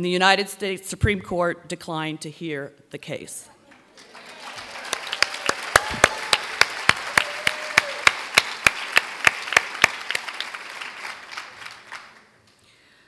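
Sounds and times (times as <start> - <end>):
audience applauding: 3.7 - 12.4
close hand claps: 3.7 - 12.6.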